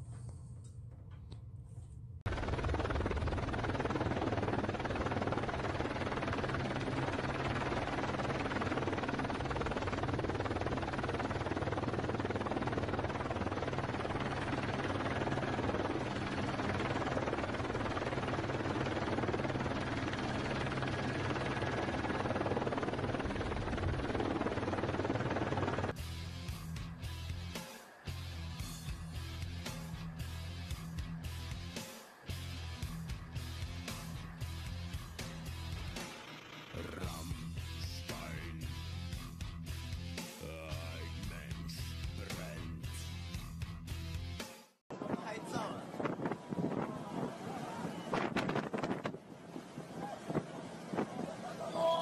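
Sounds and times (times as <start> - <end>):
drum roll music: 25.9 - 44.7
storm wind: 44.9 - 51.8.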